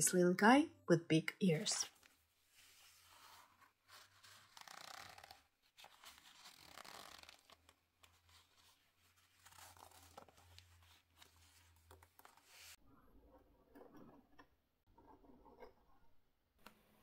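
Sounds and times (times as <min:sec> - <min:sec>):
leather rustling and scraping: 0:02.0 - 0:12.8.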